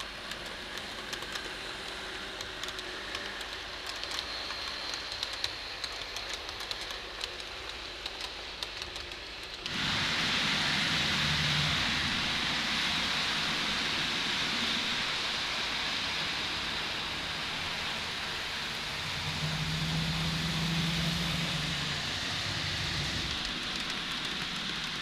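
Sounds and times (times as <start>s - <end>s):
model train wheels on rails: 0.0s - 25.0s
low motor hum: 9.6s - 24.8s.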